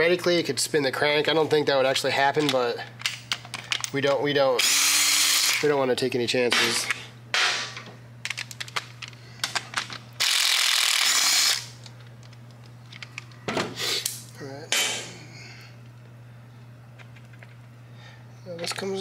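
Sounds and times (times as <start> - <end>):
cordless ratchet motor running: 4.6 - 5.7, 10.2 - 12.3
ratchet clicking: 10.2 - 11.7.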